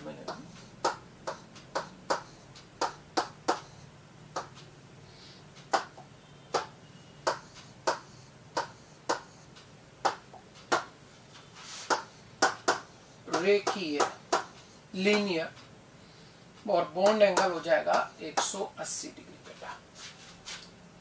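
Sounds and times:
faint steady hum: 0.0 - 21.0.

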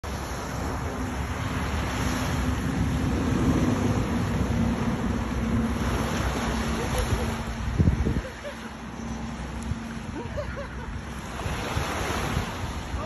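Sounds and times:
small waves washing on shore: 0.0 - 13.0
wind buffeting microphone: 0.6 - 13.0.

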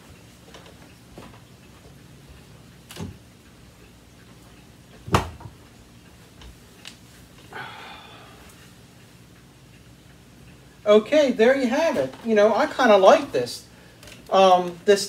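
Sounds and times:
light ticks: 5.6 - 7.5, 8.4 - 11.0.

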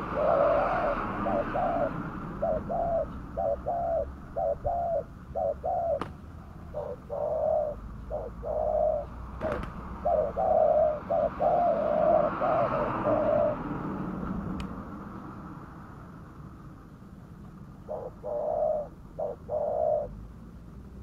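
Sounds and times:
dove cooing: 0.0 - 14.0, 17.8 - 20.2.

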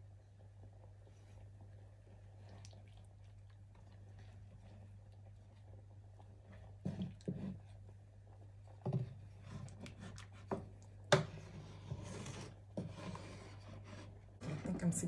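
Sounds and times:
wooden spoon stirring a pot: 3.0 - 15.0.

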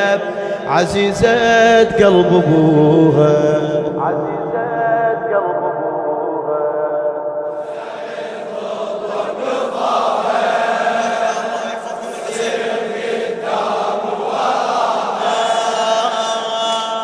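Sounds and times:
crowd of men chanting: 7.5 - 17.0.

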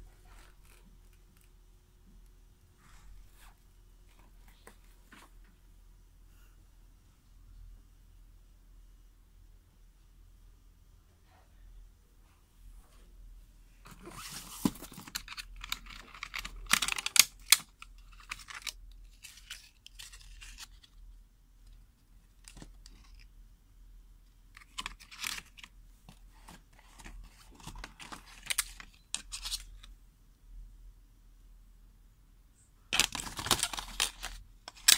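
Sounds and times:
plastic and cardboard crinkling: 13.9 - 21.0, 22.3 - 23.3, 24.5 - 29.9, 33.0 - 34.9.

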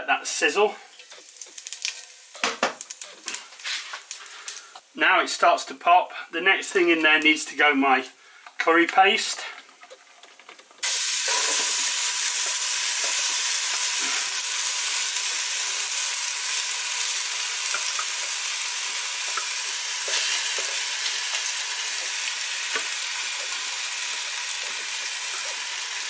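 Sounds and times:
curry paste sizzling in oil: 0.5 - 4.9, 10.8 - 26.0.

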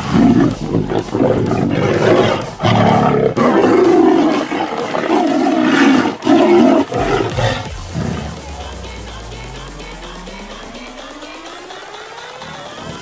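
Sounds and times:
tigers roaring and snarling: 0.0 - 8.4, 12.3 - 13.0.

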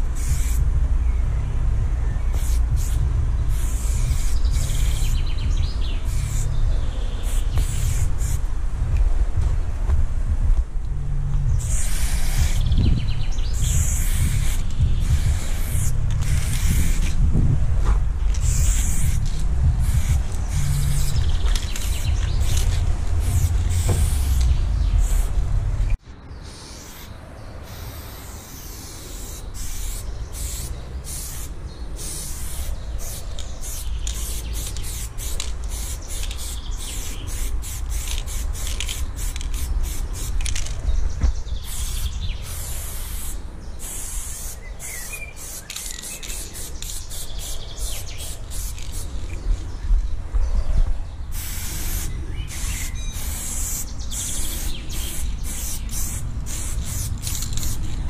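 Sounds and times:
spray paint can hissing: 0.0 - 1.2, 2.2 - 9.1, 11.6 - 49.4, 51.3 - 58.0
heavy low rumble: 0.0 - 26.0, 47.3 - 58.0.

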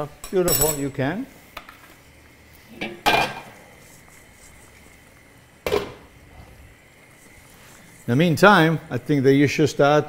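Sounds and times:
metal pots and pans clanking: 2.7 - 3.6, 5.7 - 6.0.

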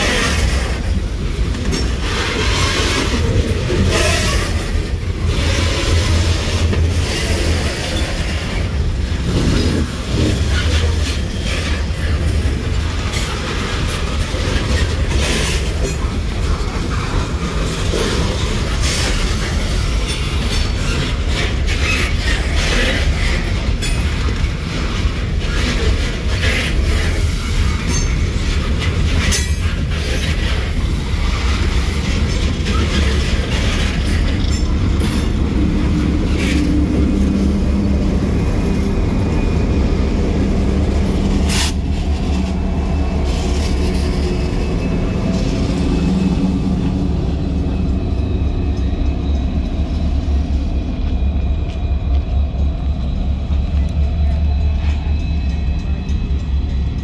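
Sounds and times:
diesel locomotive engine hum: 0.0 - 57.0
train cars rumbling: 0.0 - 57.0.

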